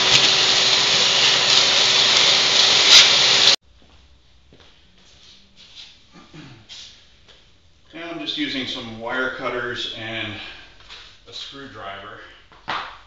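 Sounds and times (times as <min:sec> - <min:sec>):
shop vac sucking debris: 0:00.0 - 0:03.6.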